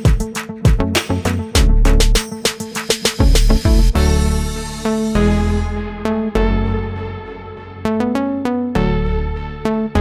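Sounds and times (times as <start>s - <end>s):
sustained bass notes: 3.2s - 10.0s.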